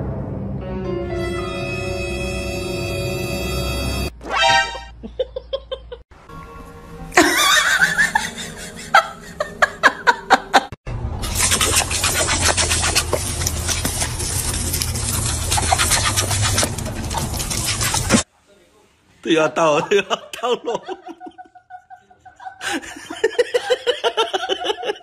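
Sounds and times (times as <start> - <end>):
hose nozzle spraying water: 11.2 - 18.3.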